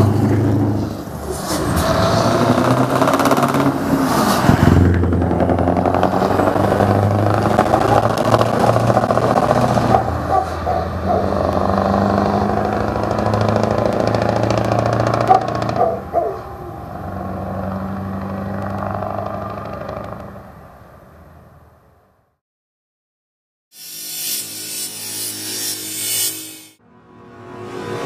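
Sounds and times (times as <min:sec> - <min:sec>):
truck engine passing: 0:00.0 - 0:22.2.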